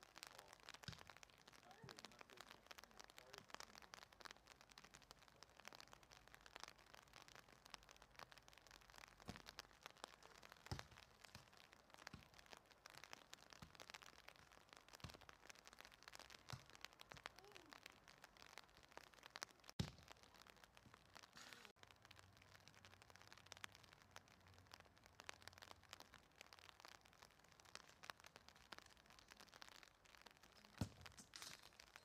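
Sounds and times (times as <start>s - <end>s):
light rain patter: 0.0s - 32.0s
soccer ball kicked on grass: 19.8s - 20.1s, 30.8s - 31.5s.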